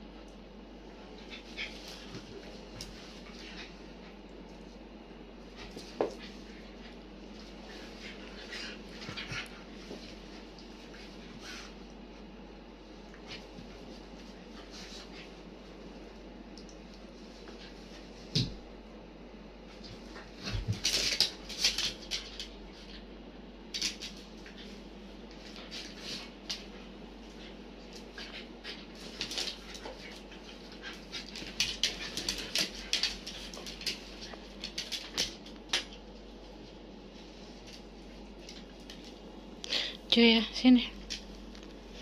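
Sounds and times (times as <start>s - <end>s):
dogs scuffling: 1.1s - 4.2s, 5.3s - 11.8s, 19.7s - 23.0s, 23.7s - 39.3s.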